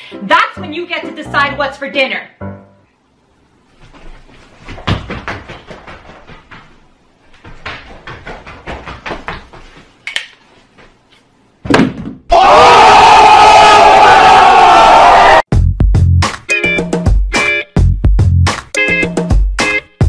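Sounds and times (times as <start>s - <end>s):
quick knocks and thumps: 3.9s - 10.0s.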